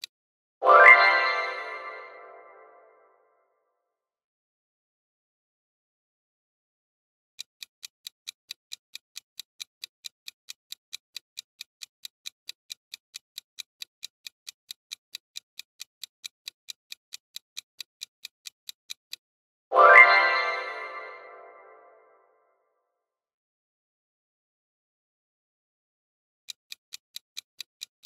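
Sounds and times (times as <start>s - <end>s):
countdown timer ticking: 7.6s - 22.0s.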